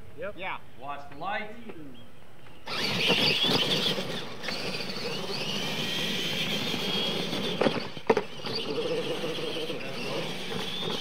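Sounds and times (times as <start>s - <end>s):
electric motors whining: 2.5s - 11.0s.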